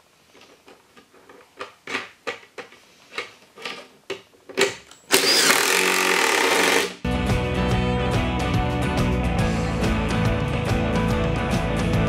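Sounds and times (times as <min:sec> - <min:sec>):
cordless drill boring into plastic: 0:05.1 - 0:07.0.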